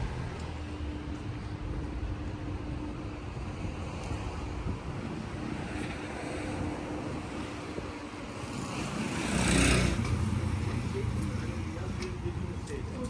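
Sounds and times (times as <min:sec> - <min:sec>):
street traffic noise: 0:00.0 - 0:13.0
motor vehicle passing close: 0:08.4 - 0:11.1.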